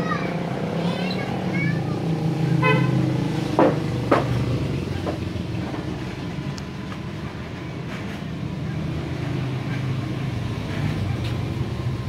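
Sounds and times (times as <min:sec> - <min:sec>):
engine running steadily: 0:00.0 - 0:12.0
sharp knocks: 0:03.5 - 0:04.4.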